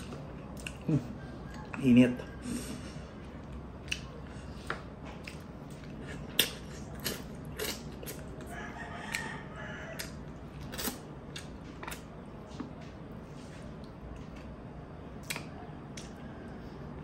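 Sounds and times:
wet mouth clicks and lip smacks: 0:15.2 - 0:16.1.

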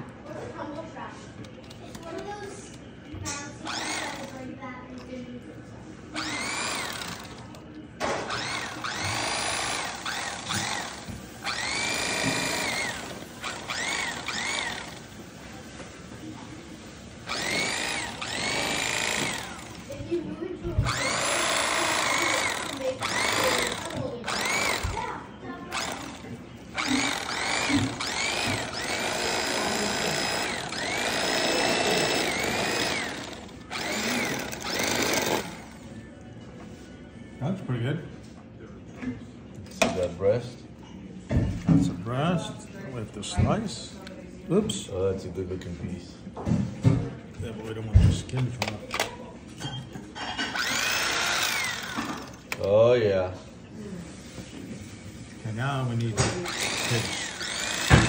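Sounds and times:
electric knife motor whining: 0:03.7 - 0:04.3, 0:06.2 - 0:07.5, 0:08.3 - 0:15.0, 0:17.3 - 0:19.8, 0:20.8 - 0:25.0, 0:25.7 - 0:35.8, 0:50.5 - 0:52.4, 0:56.4 - 0:58.0.

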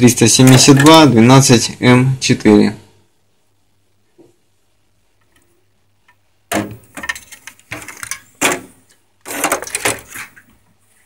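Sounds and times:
rustling scraping clatter: 0:09.2 - 0:10.6.

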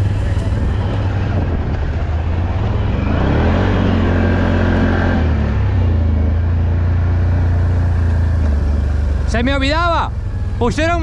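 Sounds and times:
atv engine revving: 0:00.0 - 0:11.0.

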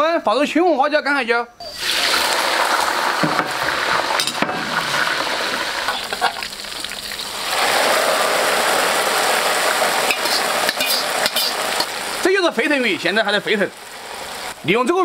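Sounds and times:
chillies sizzling in hot oil: 0:01.6 - 0:15.0
hot oil sizzling over fish: 0:01.6 - 0:15.0
knocks: 0:03.2 - 0:03.6.

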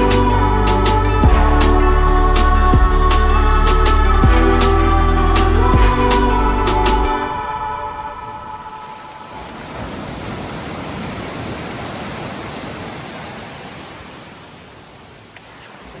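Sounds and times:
ocean surf washing around pilings: 0:08.0 - 0:16.0.

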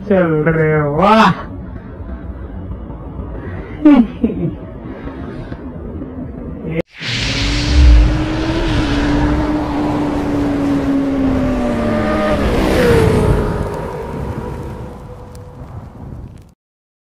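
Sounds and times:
deep boom: 0:07.0 - 0:10.3.

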